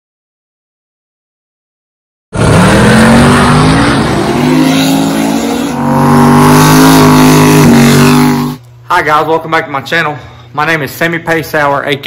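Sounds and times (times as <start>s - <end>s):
drag car engine revving: 2.4s - 8.6s.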